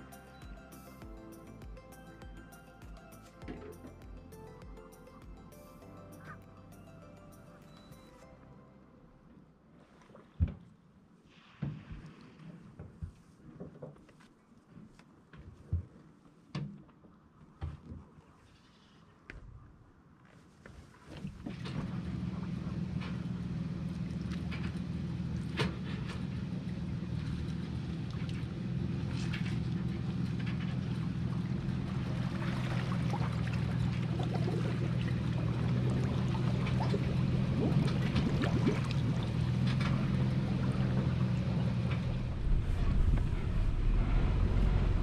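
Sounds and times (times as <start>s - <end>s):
outboard motor running: 0.0s - 8.2s, 21.4s - 45.0s.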